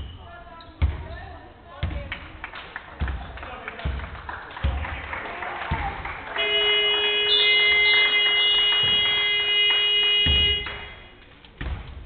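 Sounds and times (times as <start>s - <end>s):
scoreboard buzzer tone: 6.4s - 10.9s.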